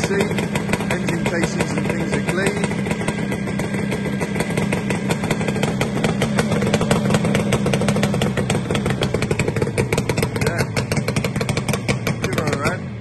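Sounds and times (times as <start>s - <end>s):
two-stroke motorcycle engine running: 0.0s - 13.0s.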